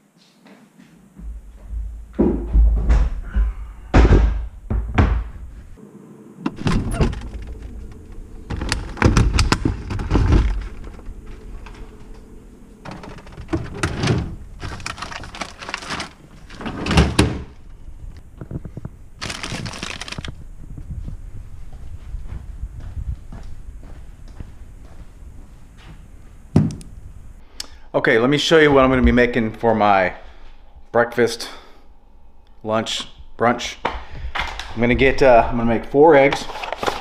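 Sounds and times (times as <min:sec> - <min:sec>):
objects thudding and clattering: 0:01.7 - 0:05.7, 0:06.5 - 0:17.8, 0:18.4 - 0:20.4
deep handling rumble: 0:06.5 - 0:27.4, 0:28.5 - 0:31.0.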